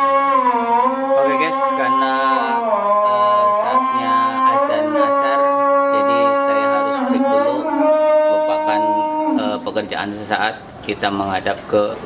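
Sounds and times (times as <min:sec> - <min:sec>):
man chanting over loudspeaker: 0:00.0 - 0:11.4.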